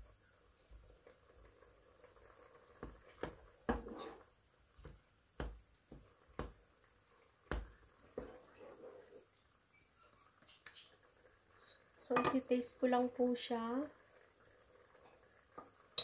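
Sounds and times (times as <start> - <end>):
wet squish of stirred liquid: 0.1 - 11.9.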